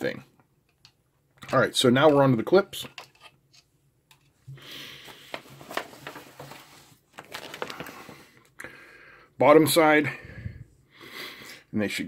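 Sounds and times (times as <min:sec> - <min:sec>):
paper rustling: 0:05.0 - 0:08.3.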